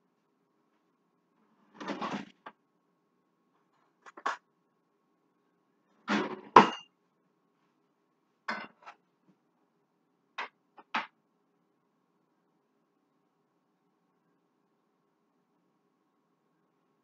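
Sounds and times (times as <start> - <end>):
pots and pans clattering: 6.1 - 6.9.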